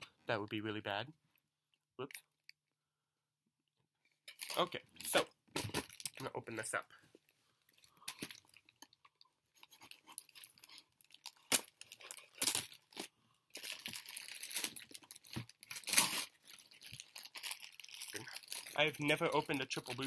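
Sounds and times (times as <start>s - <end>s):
plastic wrap and cardboard crinkling: 9.6s - 20.0s.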